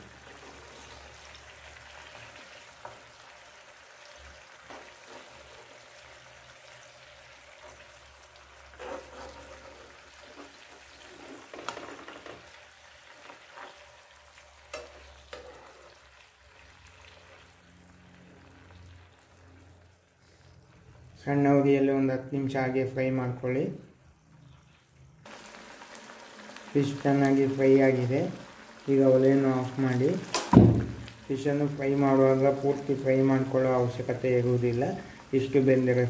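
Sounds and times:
fish sizzling in oil: 0.0s - 21.5s, 24.0s - 36.0s
spatula scraping and tapping pan: 8.7s - 12.5s, 14.7s - 16.0s.

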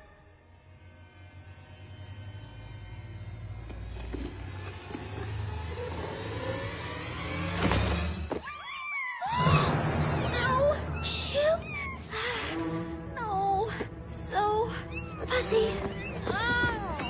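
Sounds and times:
soft film score: 9.2s - 17.0s.

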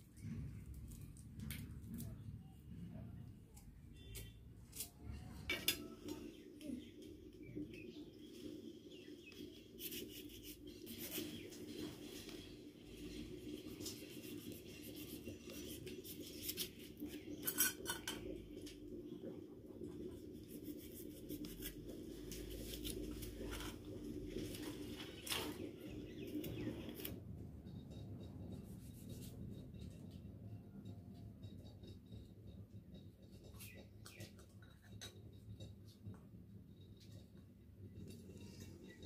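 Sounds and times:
faint low hum: 0.0s - 39.0s.

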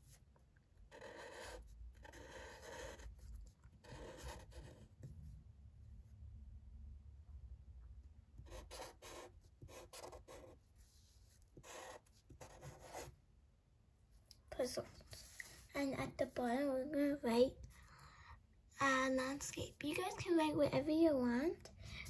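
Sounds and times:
marker writing on paper: 0.9s - 5.1s, 8.4s - 13.1s.

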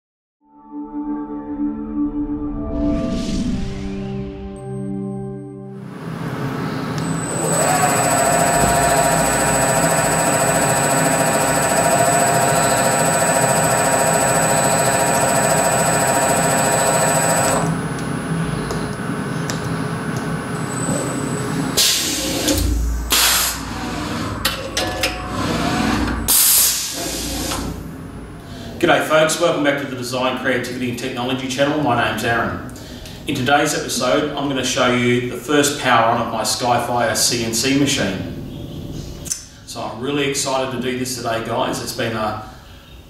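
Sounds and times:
machine whine: 5.8s - 28.6s.

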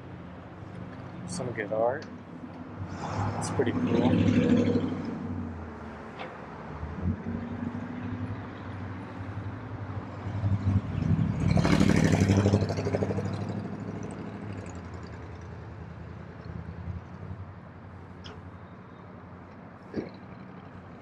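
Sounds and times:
vehicle driving past: 2.8s - 17.1s.

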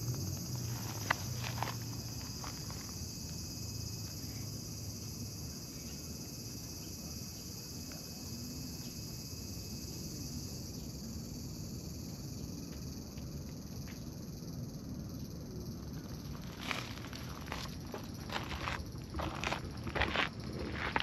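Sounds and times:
insects chorus: 0.0s - 21.0s.

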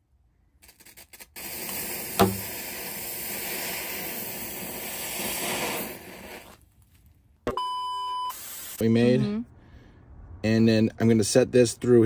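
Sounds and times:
fuse burning with hiss: 0.6s - 6.6s, 8.3s - 8.8s
sharp pop: 1.6s - 2.5s.

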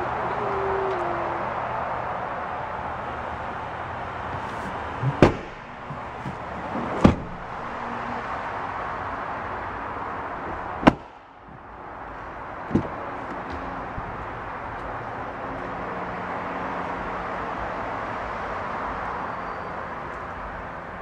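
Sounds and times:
car door shutting: 4.3s - 8.2s, 12.7s - 13.0s
car seat clunking: 4.3s - 8.2s, 12.7s - 13.0s.

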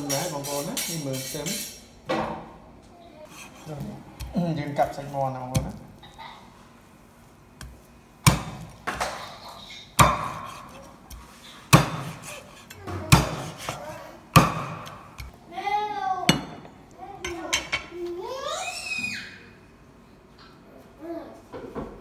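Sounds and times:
cleaver chopping on wooden block: 7.6s - 9.1s, 10.0s - 15.3s.

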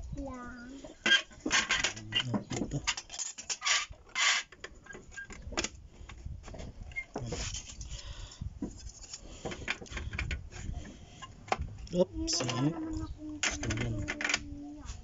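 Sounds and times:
hard plastic parts clicking: 13.4s - 14.4s.

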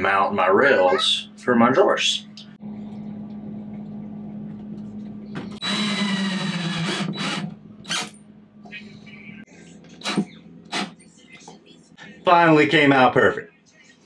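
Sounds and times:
steady low hum: 1.2s - 12.6s
cordless drill into wood: 5.6s - 8.1s.

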